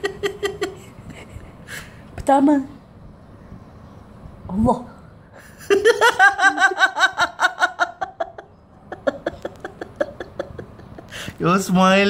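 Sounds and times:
person laughing: 0.0s - 1.4s, 5.4s - 11.2s.

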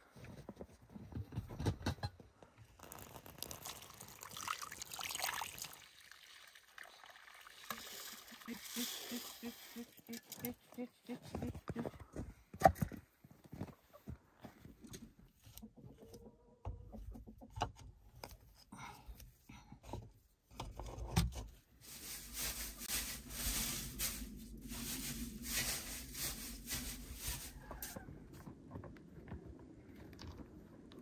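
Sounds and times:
hands rummaging through dry hay: 21.8s - 28.0s.

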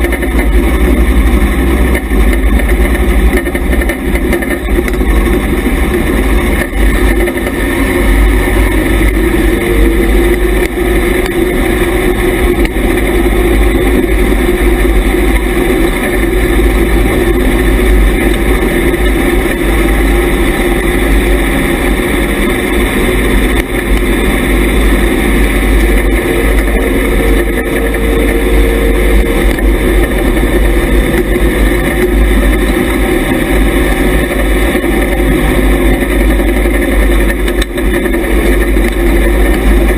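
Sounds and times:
race car engine running loud: 0.0s - 39.9s.

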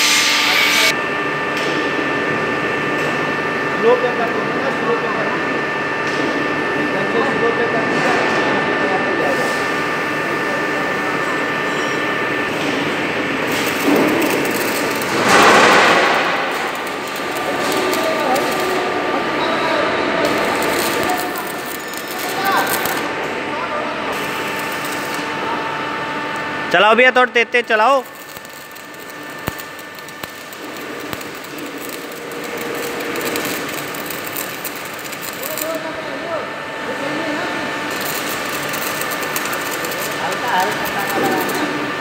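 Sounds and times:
welding arc crackling: 9.4s - 42.0s.

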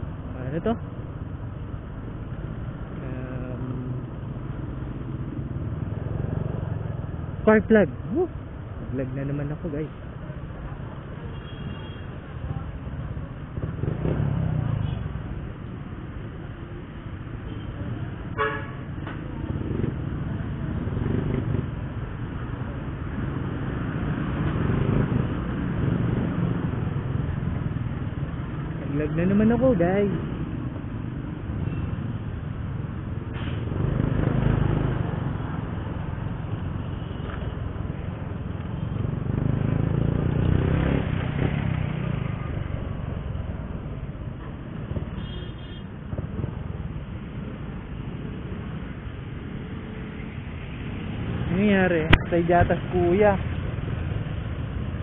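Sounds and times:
road and wind noise: 0.0s - 55.0s
motorcycle engine at low speed: 13.1s - 15.2s, 19.0s - 31.8s, 32.6s - 55.0s.

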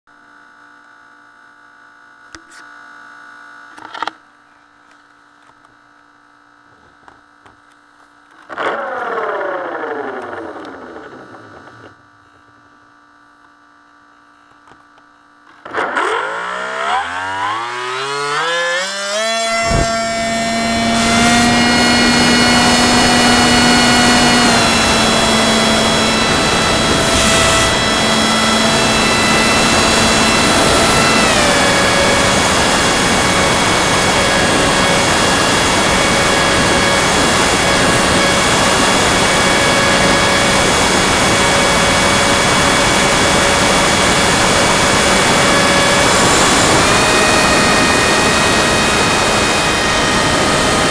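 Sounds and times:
electric motor hum and whine: 0.1s - 50.9s
rushing air: 19.1s - 31.0s.

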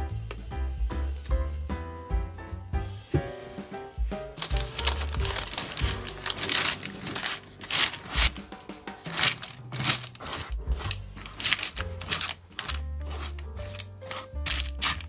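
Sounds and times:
background music with bass line: 0.0s - 15.0s
spatula scraping baking tin: 9.0s - 15.0s.

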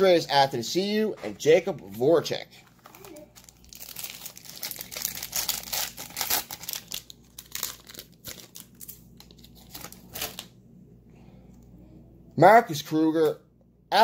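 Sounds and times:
card pack wrapper crinkling and tearing: 2.7s - 10.5s.

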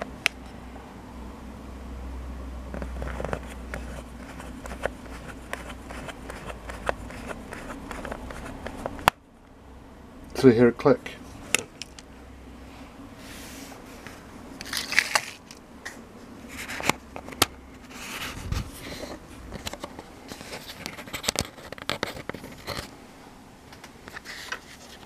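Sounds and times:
hard plastic clicks and scraping: 19.6s - 22.9s.

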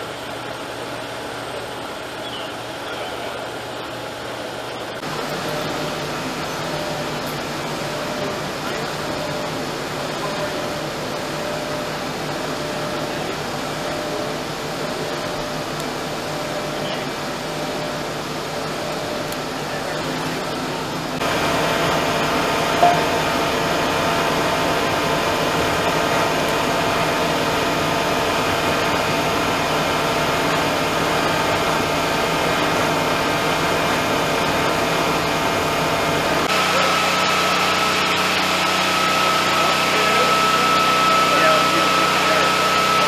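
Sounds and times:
fire engine pump drone: 0.0s - 43.0s
hum with high whine: 0.0s - 43.0s.

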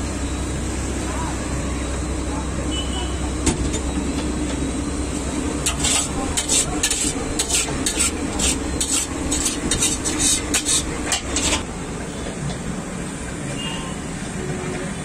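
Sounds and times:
scraping in a steel tray: 5.6s - 11.6s.

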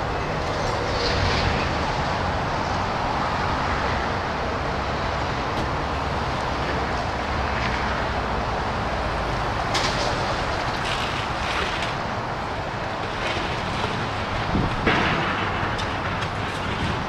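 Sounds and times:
distant engines rumbling: 0.0s - 17.0s
wind buffeting microphone: 0.0s - 17.0s.

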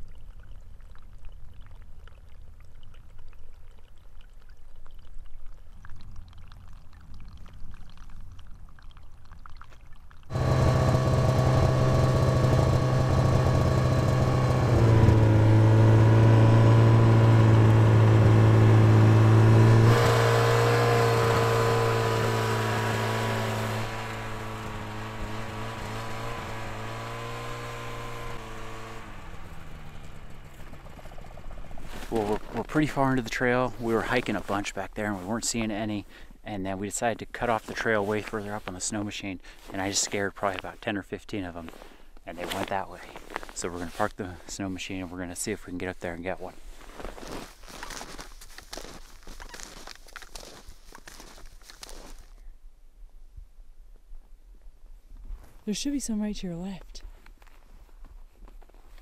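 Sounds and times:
snowmobile engine running: 10.3s - 33.2s
faint crunching: 46.4s - 52.4s.

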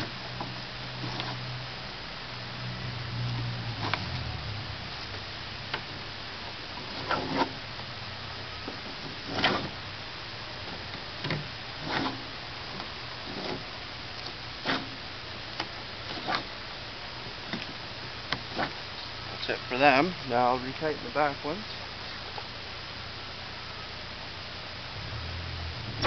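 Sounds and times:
straps swishing and rubbing: 0.0s - 1.5s, 6.8s - 7.6s, 9.0s - 9.8s, 11.8s - 13.7s, 14.6s - 14.9s, 16.1s - 16.5s, 18.5s - 18.8s.

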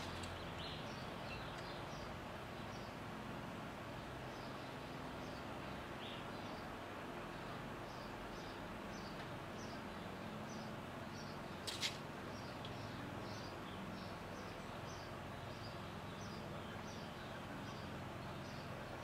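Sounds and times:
small bird chirping: 0.0s - 3.0s
steady outdoor hiss: 0.0s - 19.0s.

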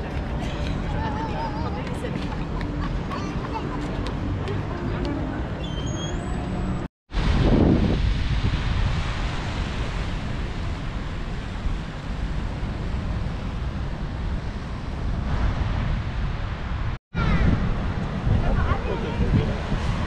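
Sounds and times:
wind buffeting microphone: 7.1s - 20.0s.

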